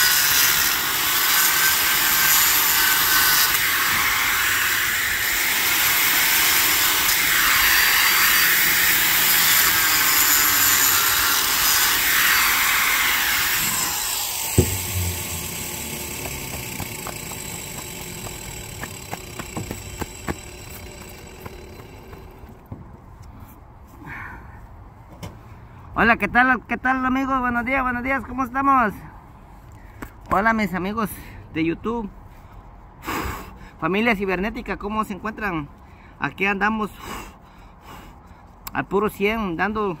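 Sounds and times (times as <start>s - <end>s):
angle grinder cutting mortar: 0.0s - 22.6s.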